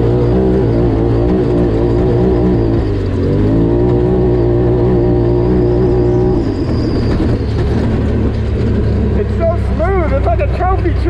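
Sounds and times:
engine running: 0:00.0 - 0:11.0.

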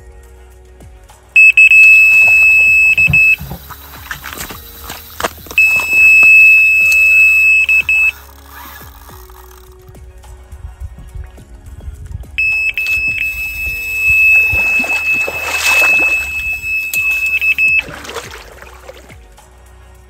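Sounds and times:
bite alarm tone and beeps: 0:01.4 - 0:03.7, 0:05.6 - 0:08.2, 0:12.4 - 0:18.1
rod clicking and rattling: 0:06.8 - 0:10.4.

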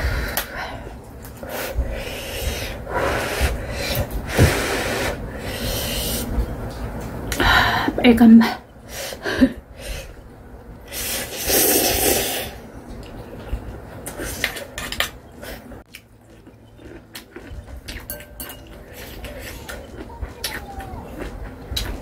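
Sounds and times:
chewing: 0:15.8 - 0:22.0.

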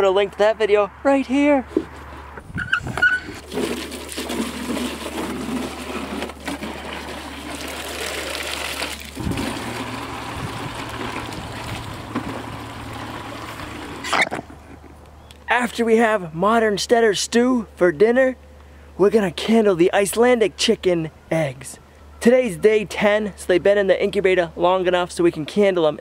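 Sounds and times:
water from hose filling jugs: 0:02.6 - 0:14.2.

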